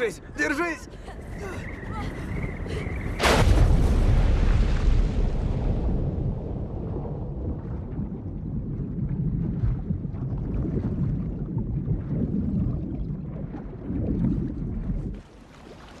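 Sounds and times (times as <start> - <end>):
muffled underwater rumble and bubbling: 5.1 - 15.4.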